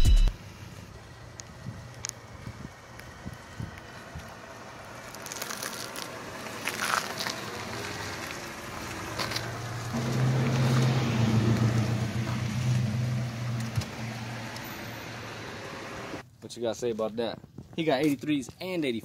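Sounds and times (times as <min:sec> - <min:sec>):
car engine idling: 0:00.4 - 0:16.2
tyres crunching over grit: 0:01.9 - 0:13.8.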